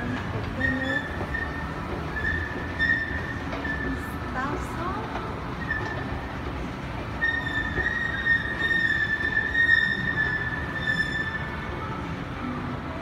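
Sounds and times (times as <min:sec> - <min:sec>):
high-pitched squeal: 0:07.2 - 0:12.1.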